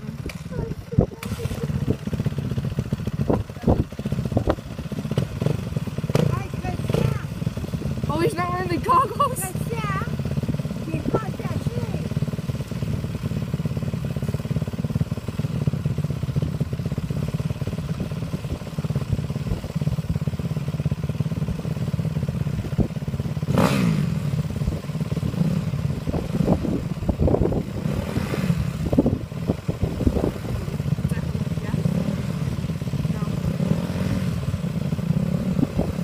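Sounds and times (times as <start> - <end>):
engine throttle revs: 0.0 - 14.4, 23.4 - 36.0
dirt bike engines idling: 0.0 - 36.0.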